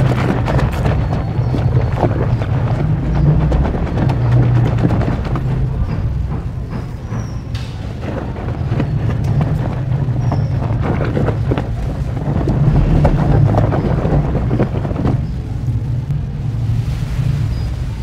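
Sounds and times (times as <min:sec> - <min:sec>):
low rumble: 0:00.0 - 0:18.0.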